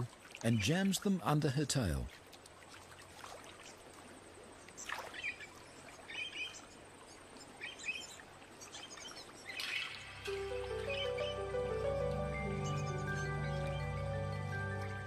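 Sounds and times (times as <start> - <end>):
river hiss: 0.0 - 15.0
small birds chirping: 4.6 - 15.0.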